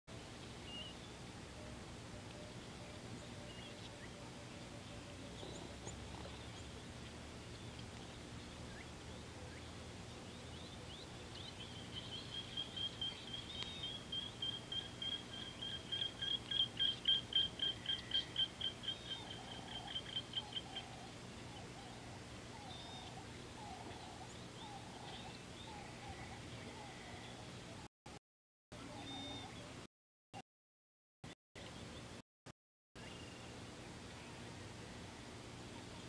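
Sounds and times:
faint bird chirps: 28.8 - 29.8.

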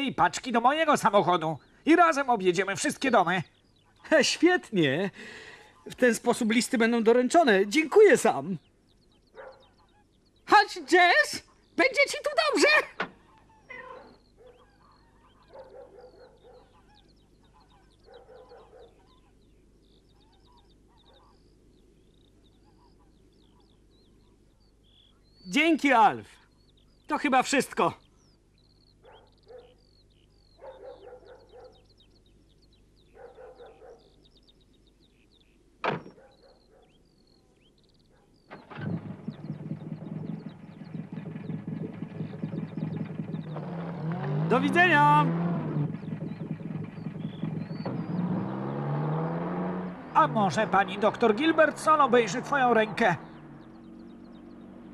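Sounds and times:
small birds chirping: 0.0 - 54.9
poultry calling: 5.3 - 54.9
van engine starting and idling: 38.5 - 49.2.

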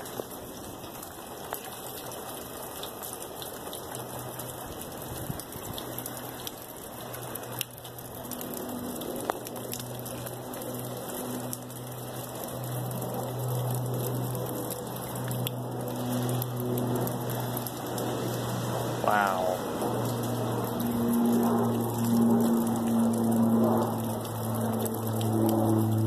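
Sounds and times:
low steady hum: 5.8 - 26.0.

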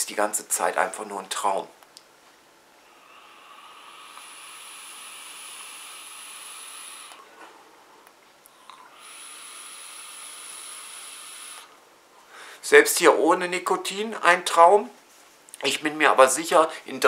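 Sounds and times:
e-cigarette draw hiss: 3.0 - 7.3, 8.8 - 11.8.

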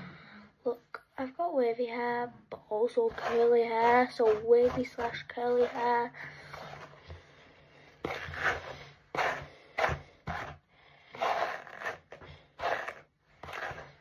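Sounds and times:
hairbrush scraping through hair: 3.1 - 7.0, 8.0 - 10.6, 11.2 - 14.0.

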